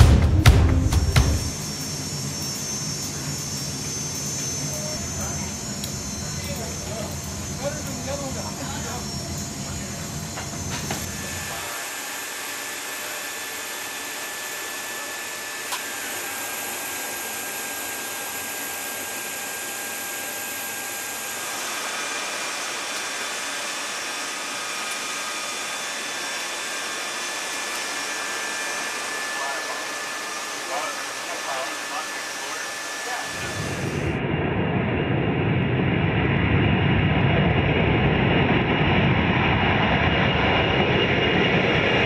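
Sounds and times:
faint high-pitched whining tones: 1.5 - 11.8
low rumble: 33.4 - 40.0.

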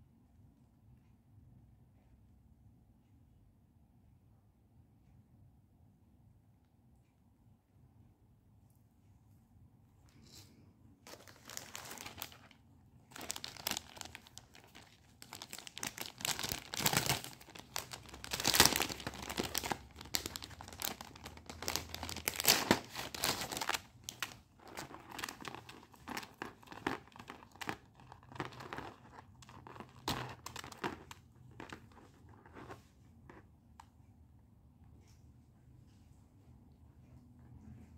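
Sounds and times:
packaging crinkling and tearing: 11.1 - 32.8.

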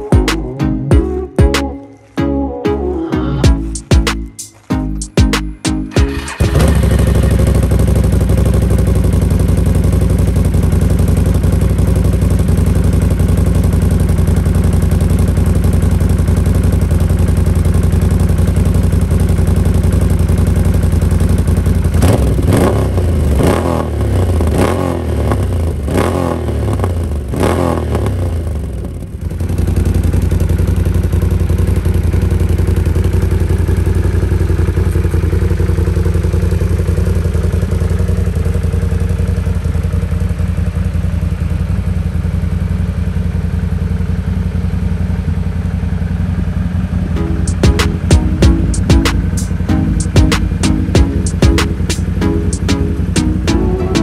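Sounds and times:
atv engine idling and revving: 0.0 - 1.7, 5.0 - 54.0.

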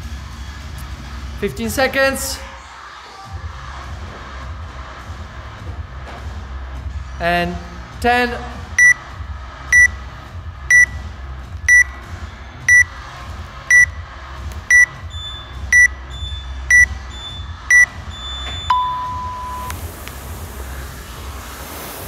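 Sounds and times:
timer beeping: 8.8 - 9.1, 9.7 - 10.0, 10.7 - 11.0, 11.7 - 12.0, 12.7 - 12.9, 13.7 - 14.0, 14.7 - 19.8
long low timer tone: 14.7 - 19.8.

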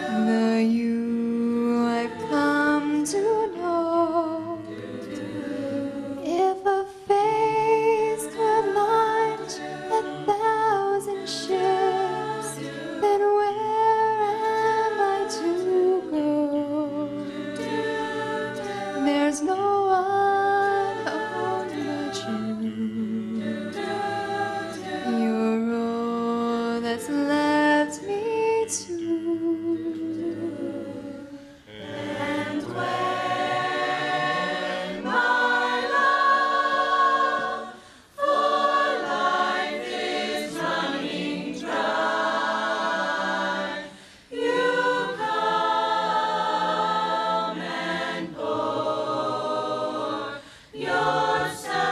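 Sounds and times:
choir singing: 0.0 - 51.9.

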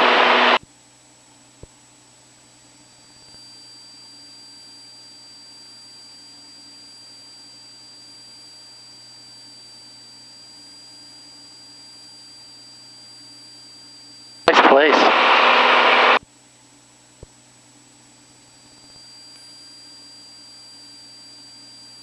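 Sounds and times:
thin high whine: 0.0 - 0.6, 3.0 - 16.2, 18.5 - 22.0
distant airplane engine drone: 14.5 - 16.2
click: 18.8 - 19.5.

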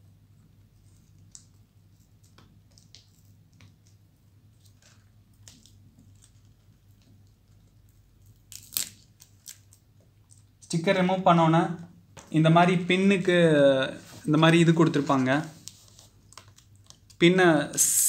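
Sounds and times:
sticker tape peeling and crackling: 4.6 - 9.9, 15.4 - 17.2.

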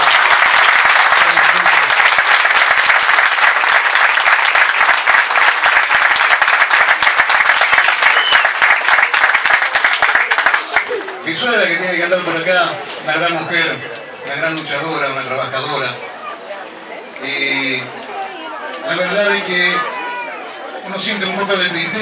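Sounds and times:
audience applauding: 0.0 - 11.4
speech: 11.2 - 22.0.

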